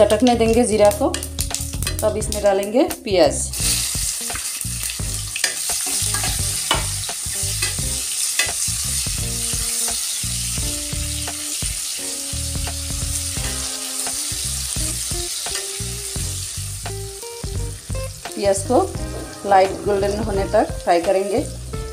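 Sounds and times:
onions sizzling in hot oil: 0:00.0 - 0:21.9
spatula scraping and knocking pan: 0:05.4 - 0:07.0.

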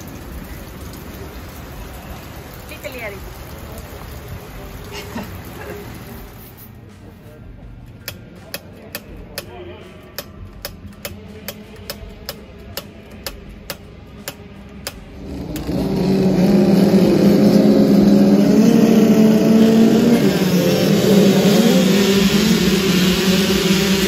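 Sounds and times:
motocross bikes revving: 0:15.0 - 0:24.0.

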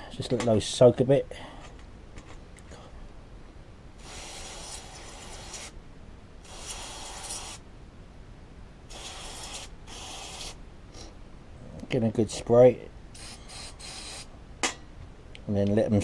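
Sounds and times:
aerosol spray hissing: 0:04.0 - 0:05.8, 0:06.4 - 0:07.6, 0:08.9 - 0:10.6, 0:13.2 - 0:14.3.

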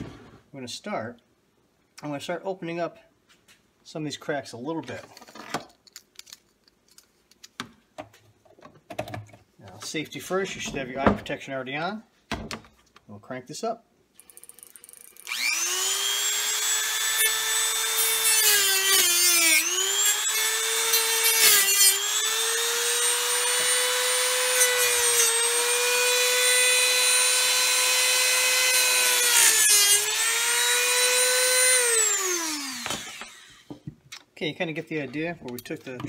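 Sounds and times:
rotary tool high whine: 0:14.2 - 0:24.6, 0:25.5 - 0:33.8.

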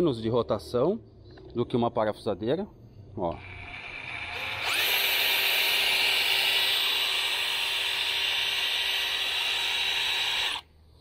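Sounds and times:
rotary hammer motor whine: 0:03.2 - 0:10.7.

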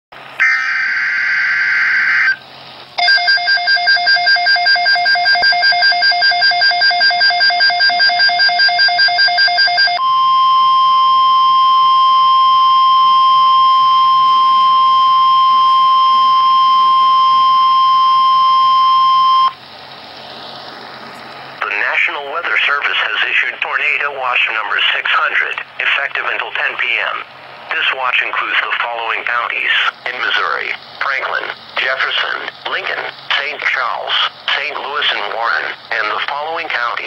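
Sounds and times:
rapid electronic alarm beeping: 0:00.4 - 0:02.4, 0:03.0 - 0:19.6, 0:30.1 - 0:37.0
screeching digital header burst: 0:00.4 - 0:02.4
steady single-pitch alert tone: 0:00.4 - 0:02.4, 0:03.0 - 0:19.6.

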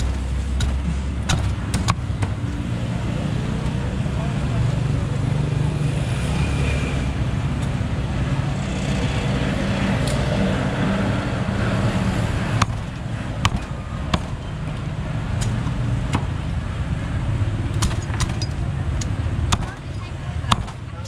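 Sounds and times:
low rumble of street traffic: 0:00.0 - 0:21.0.

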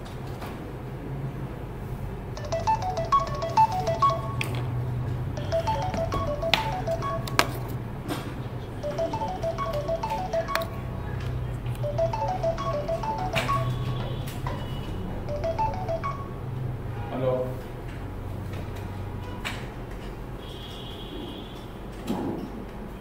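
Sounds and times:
phone ringtone melody: 0:02.4 - 0:07.8, 0:08.8 - 0:11.2, 0:11.8 - 0:14.2, 0:15.2 - 0:16.6.

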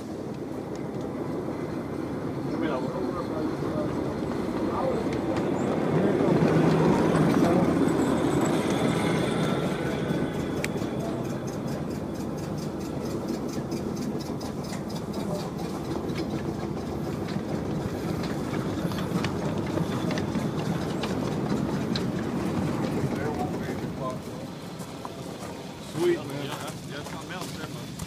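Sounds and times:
model steam locomotive rumbling: 0:00.0 - 0:28.0
rapid even clicks: 0:08.5 - 0:23.9.

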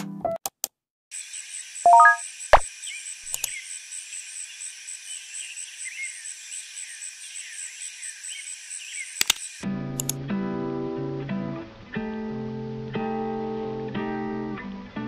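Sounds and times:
crickets chirping: 0:01.2 - 0:09.6
short higher chirps: 0:01.9 - 0:02.2.

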